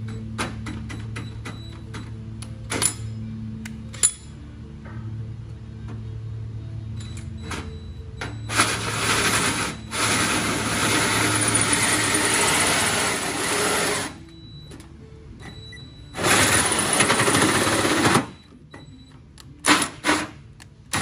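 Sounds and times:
power drill grinding through metal: 8.5 - 14.2.

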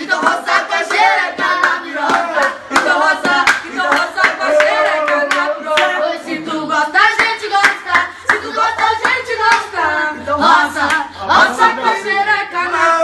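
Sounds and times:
voices singing funk: 0.0 - 13.0
sharp hand claps: 0.2 - 6.0, 7.0 - 9.7.

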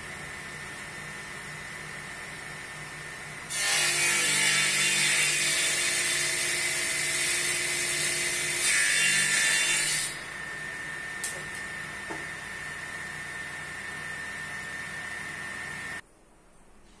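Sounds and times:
table saw ripping wood: 3.5 - 10.3.

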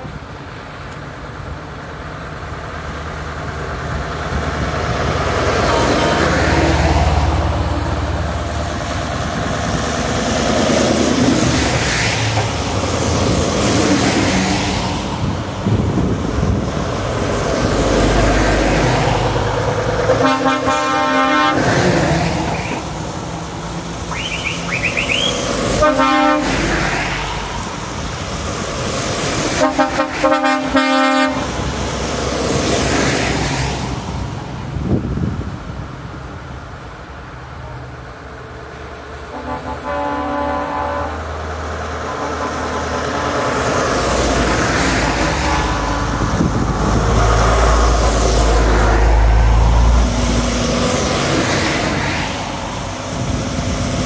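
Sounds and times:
lorries driving past: 0.0 - 54.0
lorry air horn blasts: 20.2 - 21.7, 24.2 - 26.6, 29.6 - 31.5, 39.3 - 41.2.

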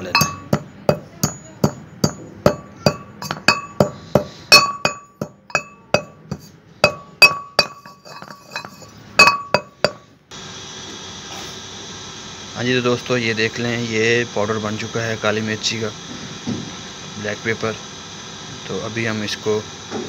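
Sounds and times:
pestle pounding in metal mortar: 0.0 - 10.0.

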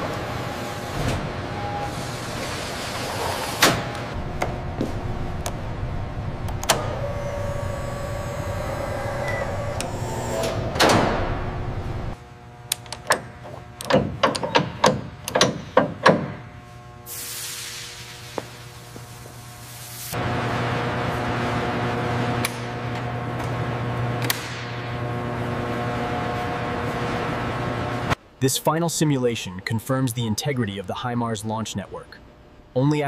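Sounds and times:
machine hum: 0.0 - 14.3.

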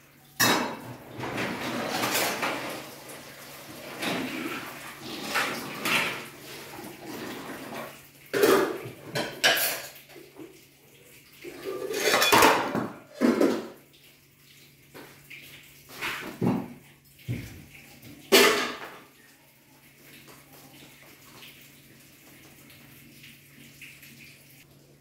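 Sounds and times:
dishes clanking in a sink: 0.3 - 10.6, 11.5 - 13.8, 15.9 - 19.2.

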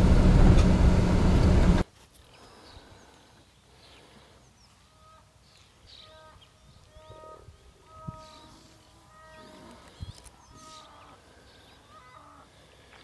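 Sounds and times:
car cabin road noise: 0.0 - 1.8
birds chirping: 2.4 - 13.0.

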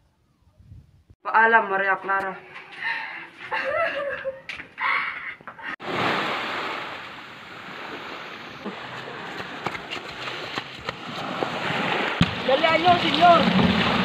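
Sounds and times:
waves washing onto pebbly beach: 5.8 - 14.0.

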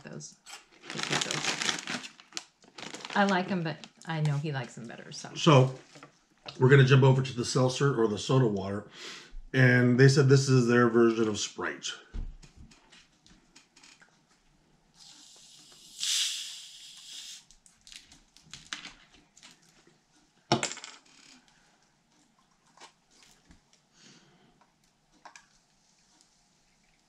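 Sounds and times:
soda bottle fizzing hiss: 15.0 - 17.5.

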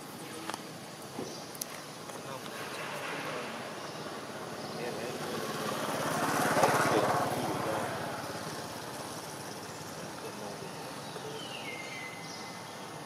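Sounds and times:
vehicle engine passing: 2.6 - 11.3.

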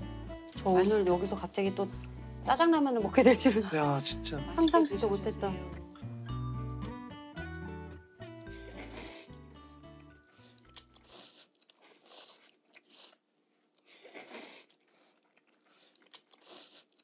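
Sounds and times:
noodles being slurped: 8.4 - 9.3, 10.2 - 17.0.

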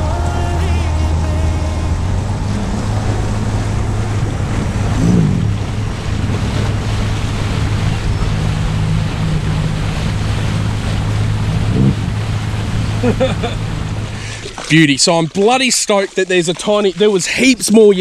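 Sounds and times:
wind noise on microphone: 0.0 - 13.0
motorboat engine humming: 0.0 - 18.0
water rushing: 0.0 - 18.0.

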